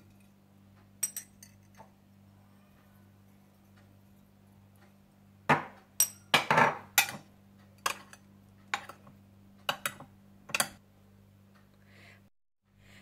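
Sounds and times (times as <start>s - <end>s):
metal spoon clinking against bowl: 1.0s - 1.8s, 6.0s - 7.2s, 7.8s - 9.0s.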